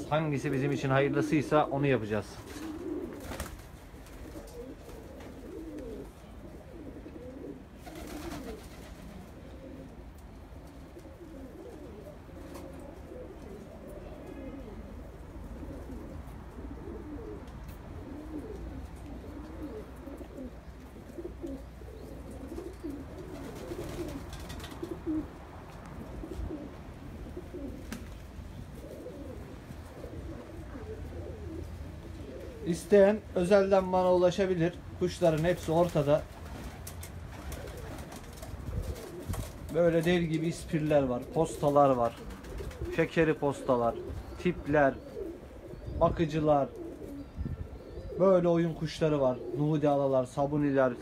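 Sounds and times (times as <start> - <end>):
pigeons cooing: 0.0 - 51.0.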